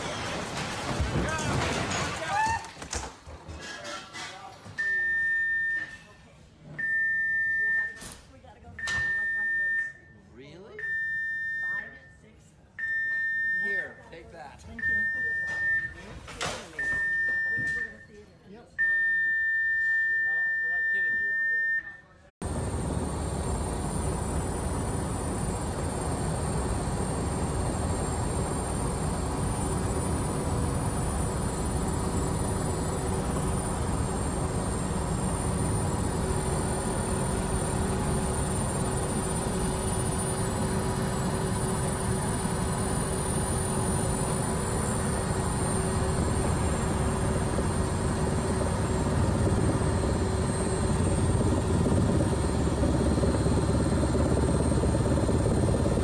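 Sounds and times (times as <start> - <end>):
helicopter rotor chopping: 22.4 - 56.0
turbine engine whine: 22.4 - 56.0.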